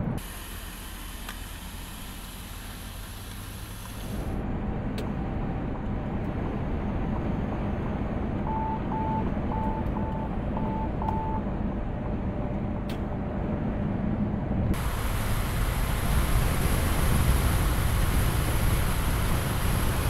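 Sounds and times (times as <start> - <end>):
truck cab road noise: 0.0 - 20.0
short warning beeps: 8.5 - 11.4.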